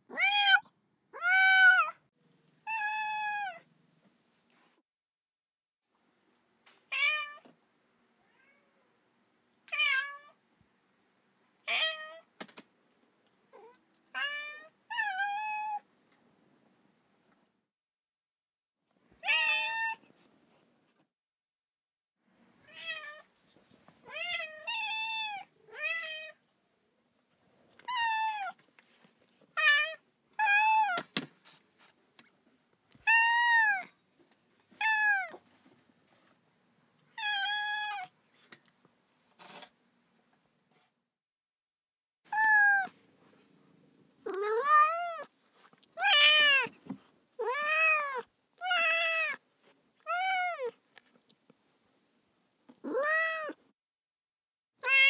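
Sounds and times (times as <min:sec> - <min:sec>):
cat meowing: 0:00.1 - 0:02.0, 0:02.6 - 0:03.7, 0:08.2 - 0:08.8, 0:13.5 - 0:15.8, 0:19.2 - 0:20.0, 0:29.6 - 0:31.0, 0:33.0 - 0:33.9, 0:34.8 - 0:35.4, 0:37.2 - 0:38.2, 0:42.3 - 0:43.0, 0:44.2 - 0:45.3, 0:46.0 - 0:46.8, 0:47.4 - 0:49.4, 0:50.0 - 0:50.8, 0:52.8 - 0:53.6, 0:54.8 - 0:55.0.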